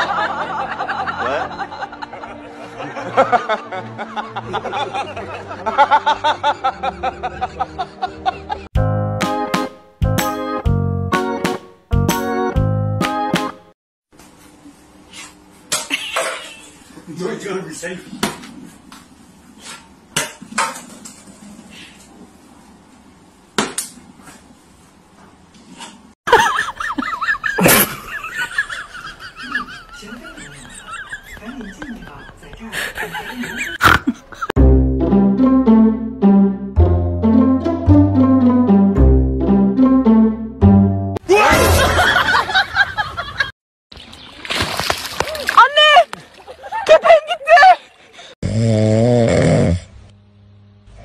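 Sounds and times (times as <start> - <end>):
dog snoring: 48.4 - 50.0.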